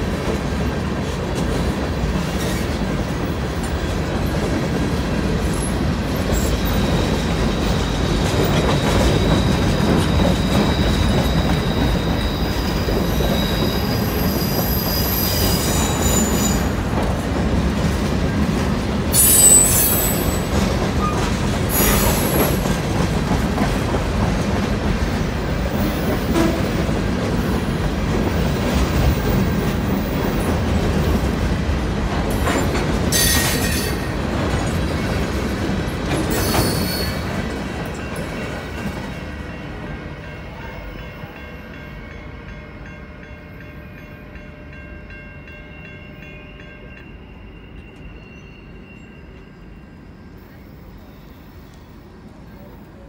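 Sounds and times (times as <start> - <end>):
train wheels rumbling on rail: 0.0 - 53.0
high wheel squeal: 6.3 - 16.8, 19.1 - 22.6, 36.3 - 37.3.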